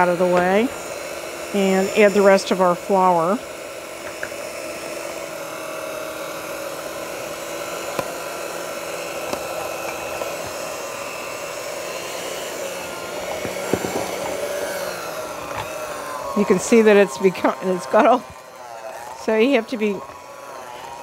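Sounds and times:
electric hand mixer whining: 0:00.0 - 0:21.0.

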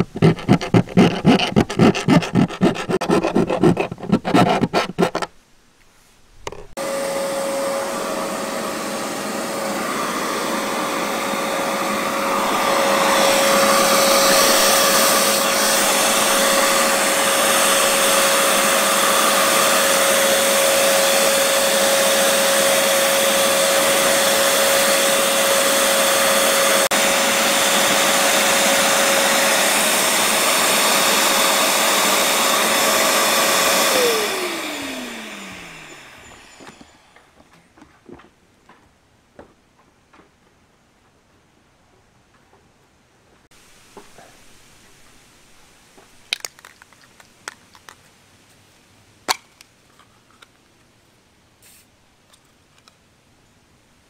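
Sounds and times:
shop vacuum whining: 0:06.8 - 0:37.6.

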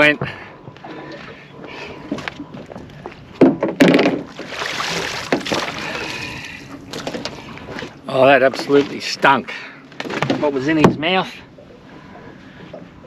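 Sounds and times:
clunks against boat: 0:00.0 - 0:01.3, 0:02.0 - 0:04.5, 0:05.2 - 0:05.8, 0:06.9 - 0:11.3
water swishing and splashing: 0:00.0 - 0:13.0.

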